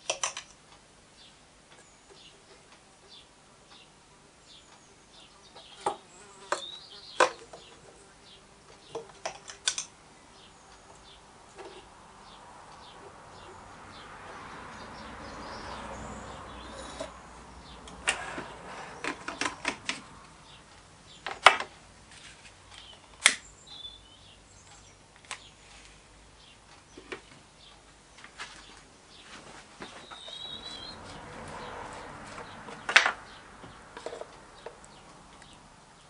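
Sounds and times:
bird chirping: 1.2s - 21.4s, 22.7s - 25.8s, 26.4s - 36.0s.

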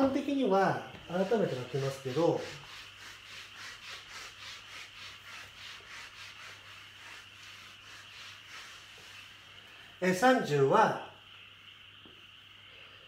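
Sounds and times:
eraser scrubbing whiteboard: 0.0s - 9.8s.

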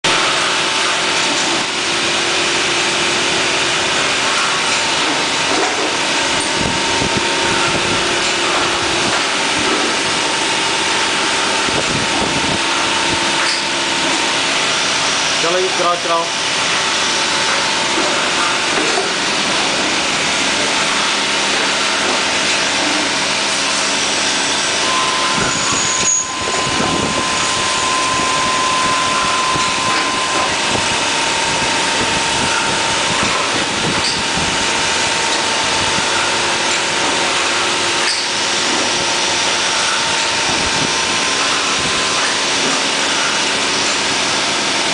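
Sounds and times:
higher machine whine: 0.0s - 44.9s
machine tools whining: 0.1s - 44.9s.

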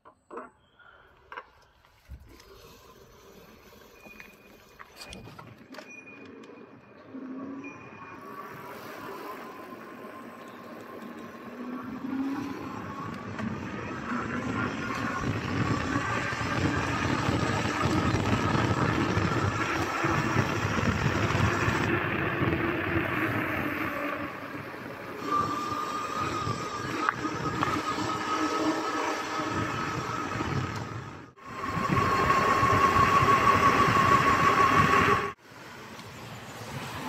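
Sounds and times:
tyre noise on road: 8.2s - 37.0s
wind rushing over microphone: 12.1s - 35.4s.

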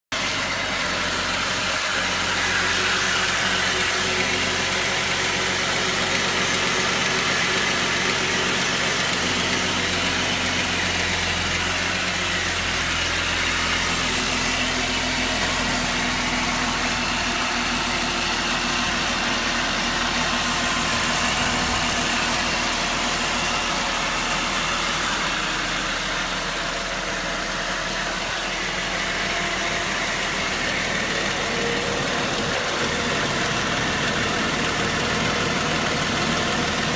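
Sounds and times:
car engine idling: 0.1s - 36.9s.

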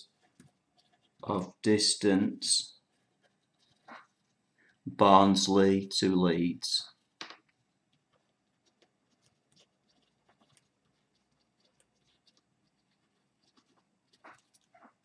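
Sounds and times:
pen scratching on paper: 0.0s - 1.5s, 2.8s - 4.4s, 7.9s - 15.0s.

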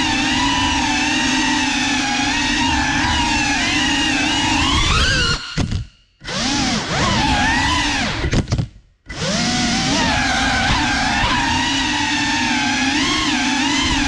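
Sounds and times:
drone motors whining: 0.0s - 8.4s, 9.1s - 14.0s.

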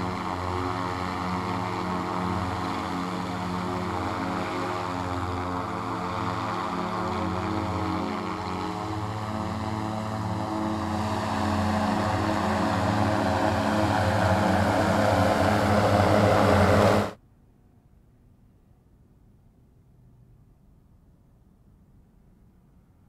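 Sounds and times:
electric aircraft propellers humming: 0.0s - 17.2s.

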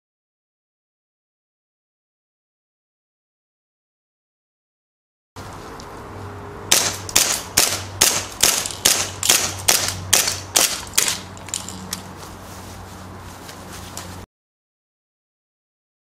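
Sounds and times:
airsoft pistol shots: 6.7s - 11.2s.

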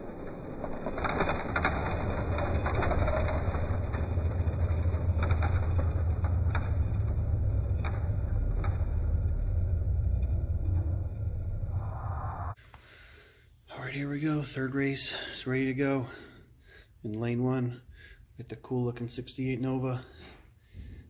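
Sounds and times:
wheels clicking on track joints: 0.0s - 11.0s
toy cars rolling on plastic track: 0.0s - 11.4s.

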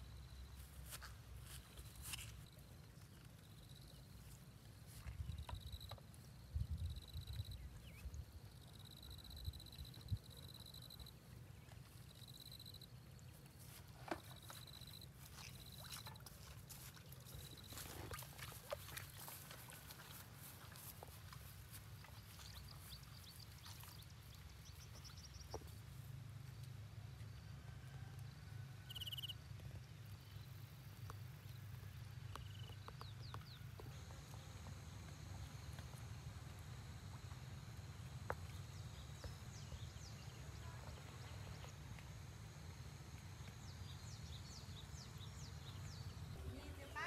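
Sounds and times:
faint high chirps: 28.8s - 29.4s.

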